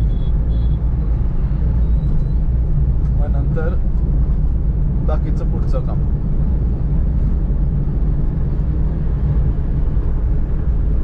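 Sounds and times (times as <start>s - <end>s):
van engine and tyre rumble: 0.0s - 11.0s.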